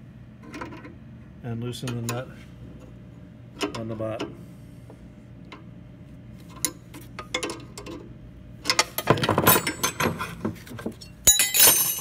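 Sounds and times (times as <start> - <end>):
wrenches clinking on metal: 8.7 - 10.2, 11.2 - 12.0
sharp metal clank: 11.3 - 12.0.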